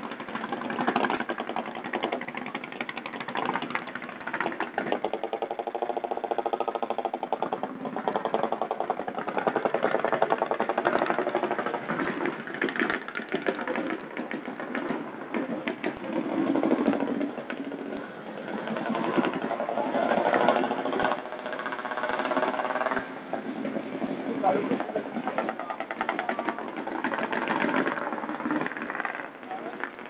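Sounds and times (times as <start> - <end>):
combustion engine idling: 0.0 - 30.0.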